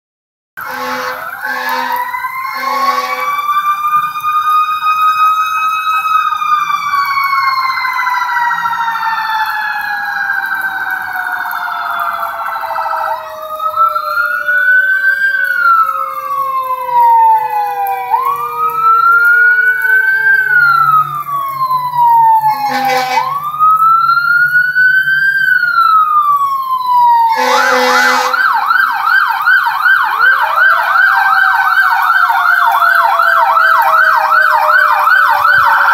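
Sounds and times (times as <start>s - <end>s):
short horn blasts: 0.6s - 3.3s, 22.5s - 23.3s, 27.3s - 28.4s
siren fast yelp: 0.6s - 35.9s
sirens wailing: 0.6s - 35.9s.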